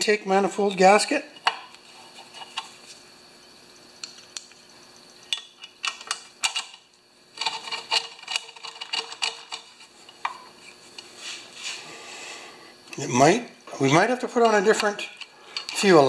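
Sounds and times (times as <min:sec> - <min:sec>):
metal engine parts clinking: 0:07.4 - 0:10.4, 0:14.2 - 0:16.0.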